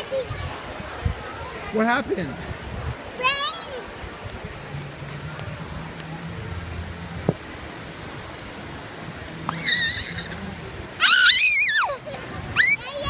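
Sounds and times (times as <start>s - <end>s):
rain falling on wet pavement: 0.0s - 13.0s
child squealing: 9.5s - 10.4s, 11.0s - 12.0s, 12.6s - 13.0s.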